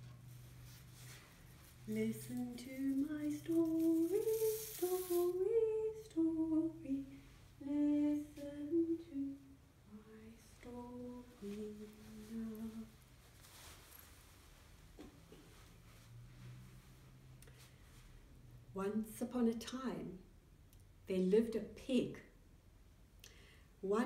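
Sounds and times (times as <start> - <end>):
person humming a gentle tune: 1.9 - 13.0.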